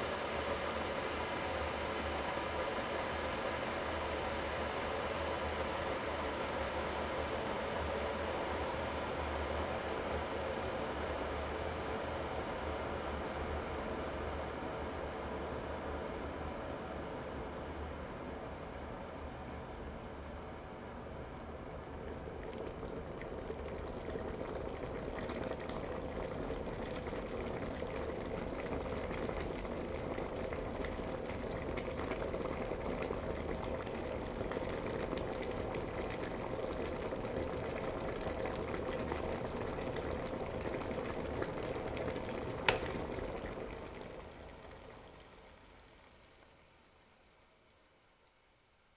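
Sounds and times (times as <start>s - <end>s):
electric kettle boiling: 0.0s - 48.4s
kettle switch click: 42.6s - 43.0s.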